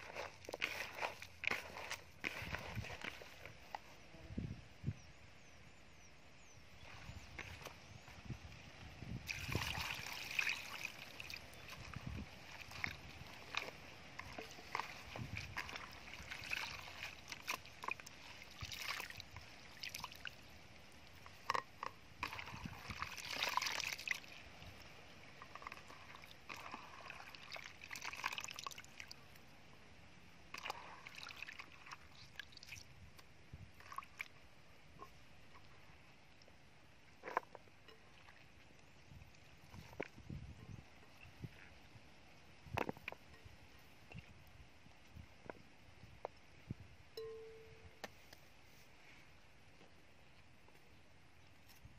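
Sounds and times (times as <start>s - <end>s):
hands sloshing vegetables in water: 0.0s - 3.6s, 9.2s - 20.4s, 22.2s - 24.6s, 25.5s - 29.1s
water splashing and dripping: 9.2s - 21.6s, 22.2s - 29.2s.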